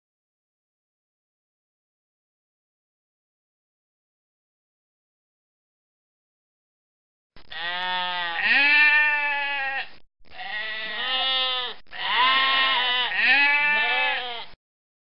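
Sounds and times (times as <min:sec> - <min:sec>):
goats bleating: 0:07.5 - 0:14.6.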